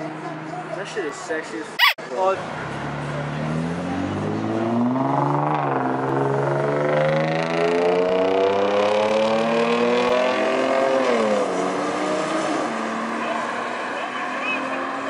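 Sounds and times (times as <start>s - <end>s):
car engine revving: 2.7s - 13.3s.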